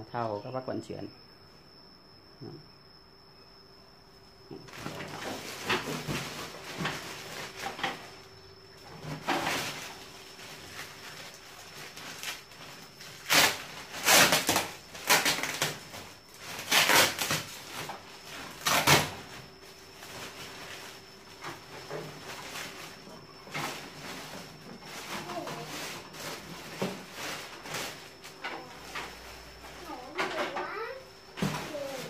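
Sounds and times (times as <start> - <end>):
plastic film crinkling: 4.7 - 8.2, 9.3 - 19.3.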